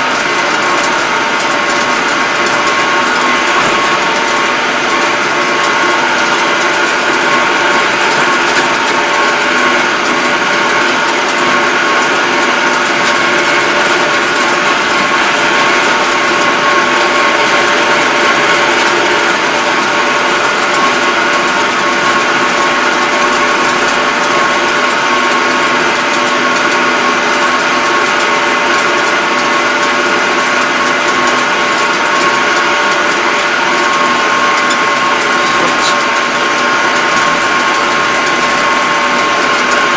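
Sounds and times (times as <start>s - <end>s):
tractor engine drone: 0.0s - 39.9s
steady high whine: 33.9s - 39.8s.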